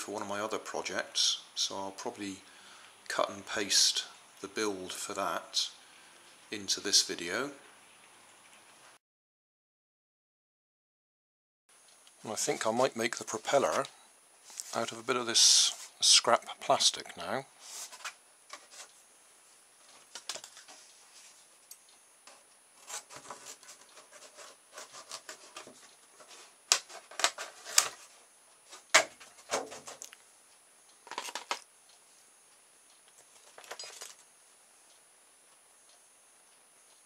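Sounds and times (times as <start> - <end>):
plastic jug crackling and snapping: 26.7 - 28.0.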